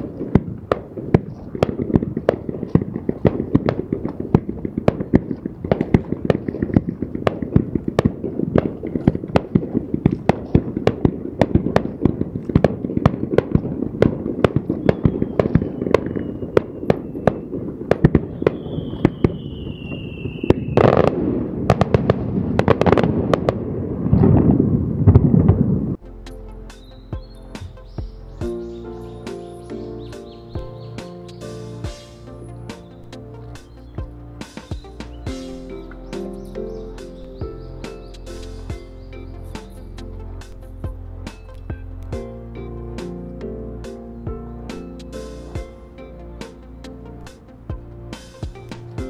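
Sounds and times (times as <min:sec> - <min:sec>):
fireworks crackling and popping: 0:00.0 - 0:26.0, 0:31.0 - 0:36.4, 0:37.9 - 0:43.3, 0:44.8 - 0:49.0
firework whistle: 0:14.5 - 0:21.9.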